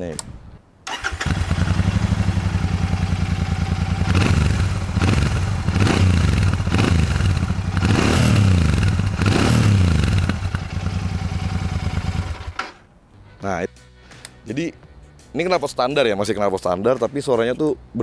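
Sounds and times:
motorcycle engine idling and revving: 0.9 - 12.6.

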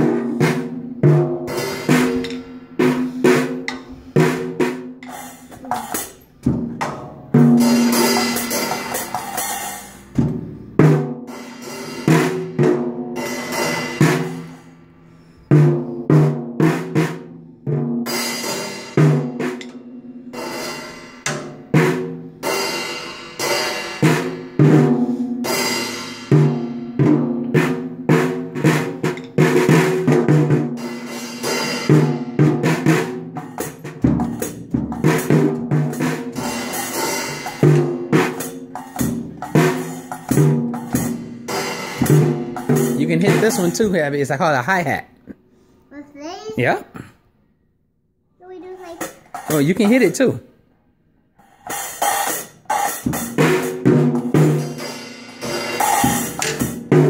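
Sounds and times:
drumstick hits on drums: 0.0 - 11.0, 19.0 - 19.9, 21.2 - 22.0, 26.3 - 30.8, 48.8 - 50.2, 51.6 - 57.0
cymbal crashes: 7.5 - 10.2.

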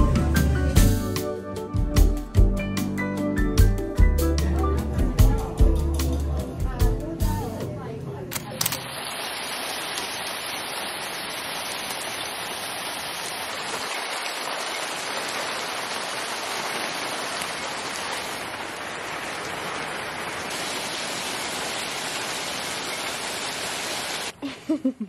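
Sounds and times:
hail and heavy rain falling: 9.0 - 24.3.

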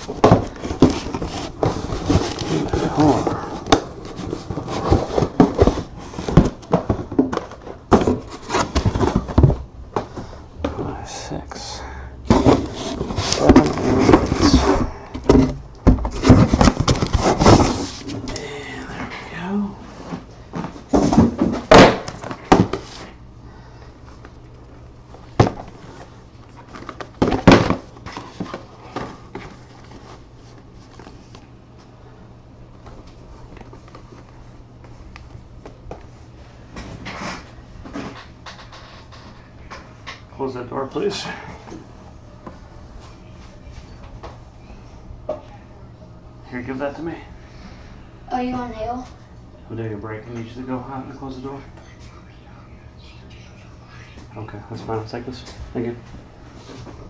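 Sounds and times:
cardboard boxes knocking and scuffing: 0.0 - 10.8, 12.3 - 18.3, 20.1 - 23.1
low steady hum: 0.0 - 57.0.

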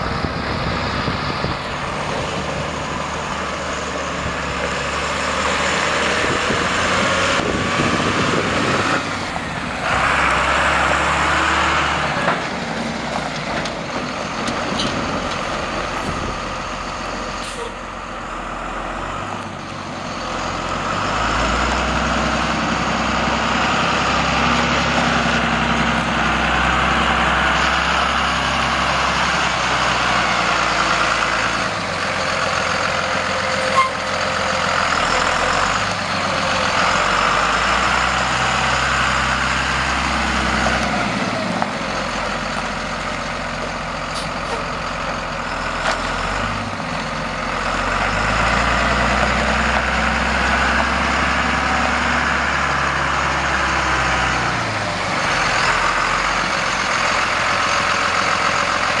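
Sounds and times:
diesel truck engine revving: 0.0 - 59.0.

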